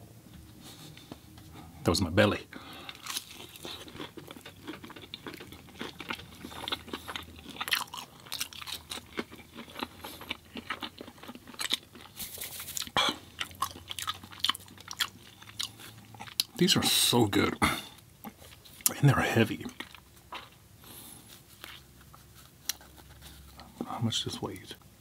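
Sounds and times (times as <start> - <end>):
person biting and chewing: 2.9 - 16.6.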